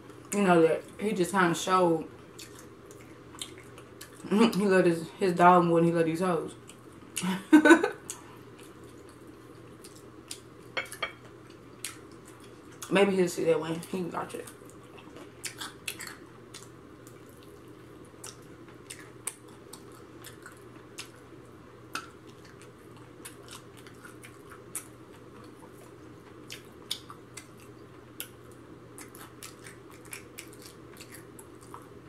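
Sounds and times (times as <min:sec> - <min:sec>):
steady low hum: 0:00.0 - 0:32.0
chewing and lip smacks: 0:02.2 - 0:04.3, 0:08.0 - 0:12.9, 0:14.4 - 0:21.3, 0:21.9 - 0:32.0.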